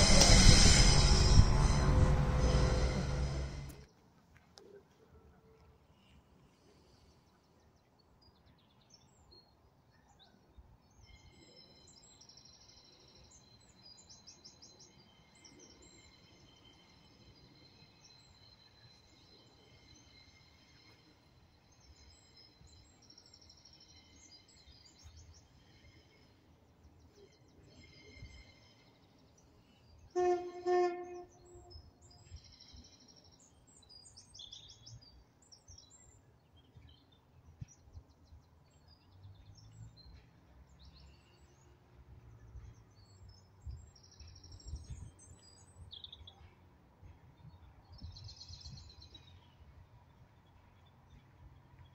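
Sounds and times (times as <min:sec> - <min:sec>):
train horn blasts: 0:00.0 - 0:03.8, 0:30.1 - 0:31.8.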